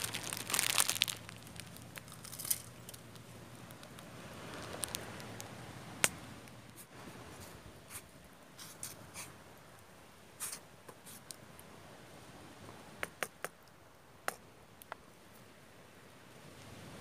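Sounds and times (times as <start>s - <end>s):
wood fire crackling: 0.0s - 6.8s.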